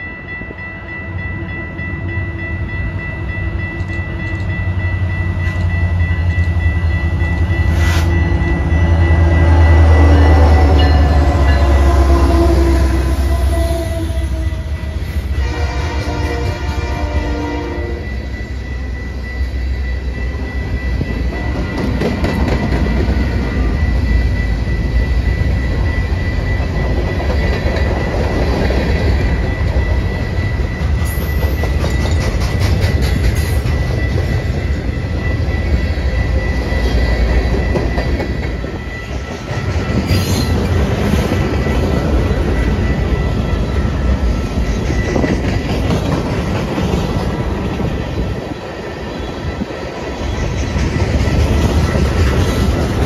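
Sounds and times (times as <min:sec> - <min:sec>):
train rolling rumble: 0:00.0 - 0:53.0
locomotive horn: 0:07.7 - 0:18.1.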